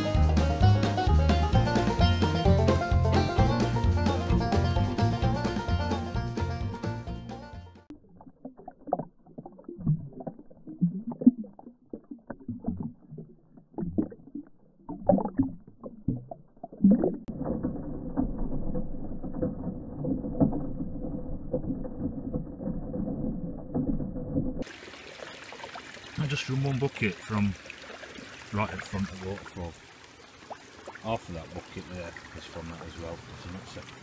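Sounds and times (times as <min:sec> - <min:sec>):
muffled water rushing: 0:07.8 - 0:34.0.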